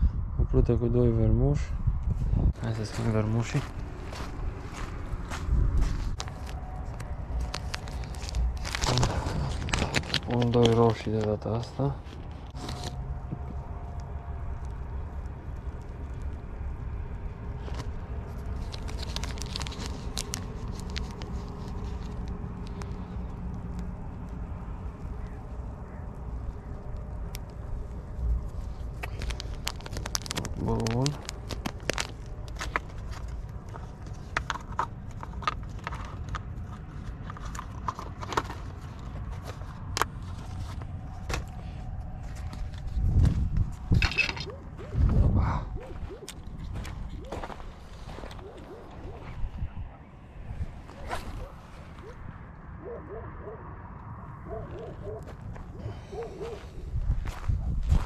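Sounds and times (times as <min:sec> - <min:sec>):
wind on microphone: 0:00.0 - 0:02.8, 0:03.7 - 0:10.3, 0:40.5 - 0:53.0, 0:55.8 - 0:58.0
wind rumble on microphone: 0:00.0 - 0:58.0
fishing tackle clicks and rustles: 0:05.9 - 0:13.0, 0:17.6 - 0:23.5, 0:28.4 - 0:45.1
plastic bag crinkling: 0:18.5 - 0:21.9, 0:28.9 - 0:33.2.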